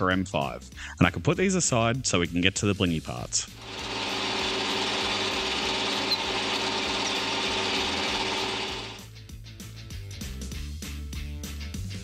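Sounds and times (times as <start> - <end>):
drill bit hissing cutting metal: 3.6 - 9.0
lathe motor hum: 3.6 - 9.0.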